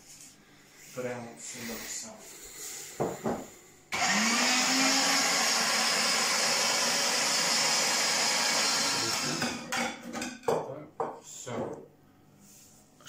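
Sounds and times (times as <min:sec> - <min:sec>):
electric meat grinder motor humming: 0:04.0 - 0:09.7.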